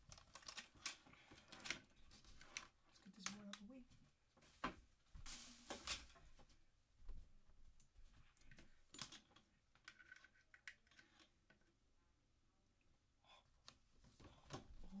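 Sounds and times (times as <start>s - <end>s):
objects clicking and knocking on desk: 8.5s - 11.7s.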